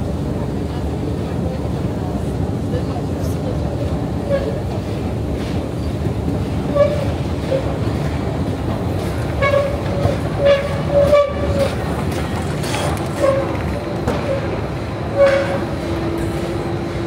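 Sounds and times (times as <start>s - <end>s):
escalator rumbling: 3.6s - 17.0s.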